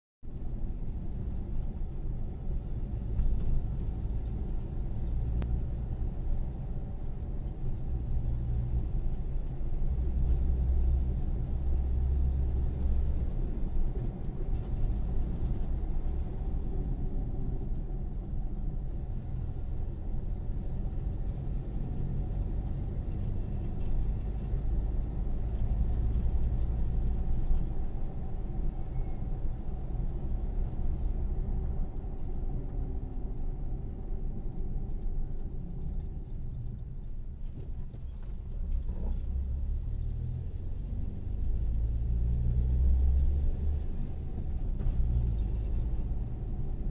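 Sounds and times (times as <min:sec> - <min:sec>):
car engine and tyres rumbling: 0:00.2 - 0:46.9.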